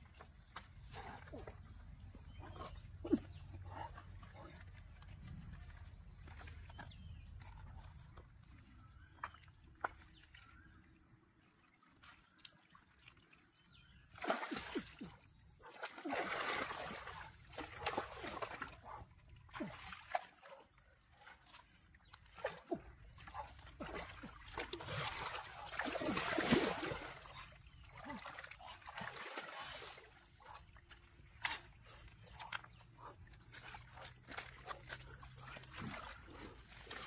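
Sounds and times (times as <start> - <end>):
stick splashing stream water: 14.1 - 18.8, 19.5 - 20.4, 22.3 - 30.3, 33.3 - 37.0.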